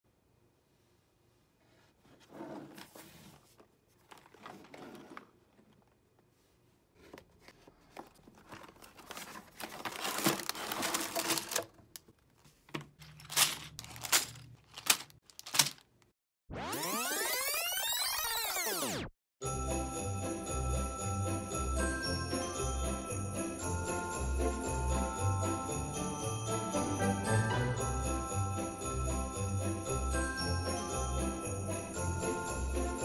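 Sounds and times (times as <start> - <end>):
cardboard box being opened: 7.1 - 11.7
plastic bags crinkling: 8.0 - 16.1.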